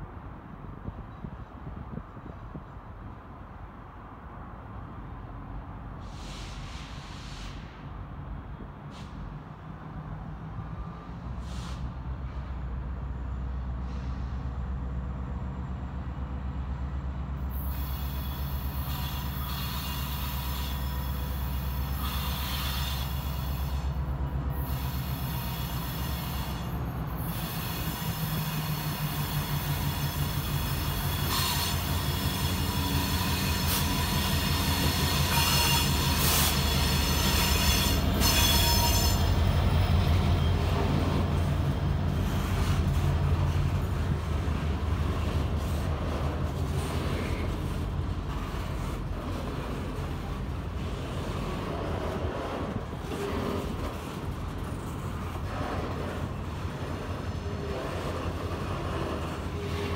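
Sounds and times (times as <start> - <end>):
diesel locomotive running: 0.0 - 59.9
train cars rolling by: 4.9 - 59.9
high wheel squeal: 17.5 - 43.8.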